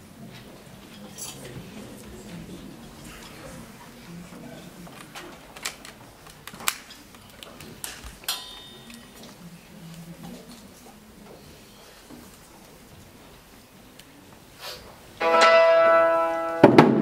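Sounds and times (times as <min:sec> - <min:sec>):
instruments handled clicks and knocks: 0:04.9 - 0:09.3.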